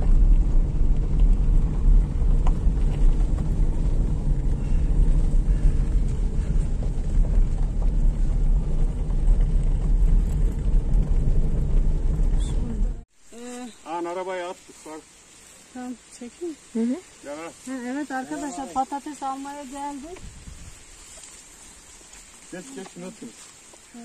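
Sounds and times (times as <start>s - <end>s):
car engine low rumble: 0.0s - 13.1s
tyres on gravel: 0.0s - 15.4s, 17.0s - 24.0s.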